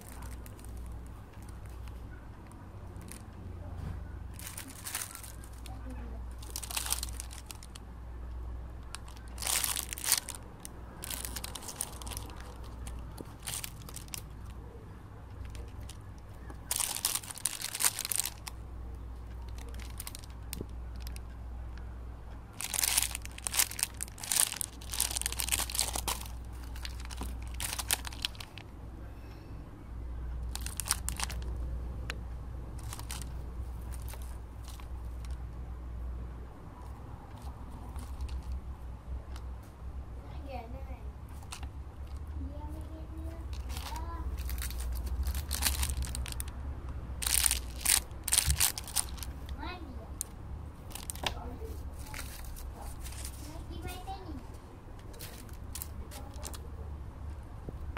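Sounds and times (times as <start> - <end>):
plastic bags crinkling: 0.0 - 1.8, 3.0 - 3.3, 4.3 - 7.8, 8.9 - 14.6, 15.4 - 18.6, 19.5 - 21.2, 22.5 - 28.7, 30.4 - 31.6, 32.8 - 35.4, 37.3 - 38.6, 41.4 - 42.2, 43.5 - 46.5, 47.2 - 49.6, 50.2 - 53.5, 55.1 - 56.7
low steady hum: 0.0 - 57.9.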